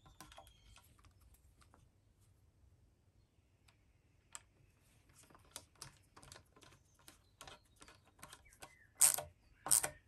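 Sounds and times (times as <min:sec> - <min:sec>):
screwdriver turning screw clicking: 0:07.4 - 0:10.0.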